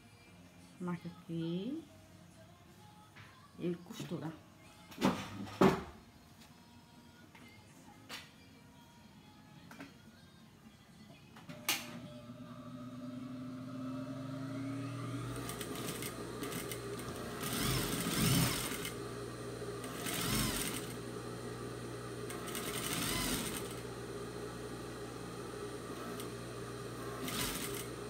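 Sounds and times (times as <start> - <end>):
sewing machine stitching: 12.2 - 19.1, 19.7 - 21.1, 22.1 - 23.9, 25.9 - 28.0.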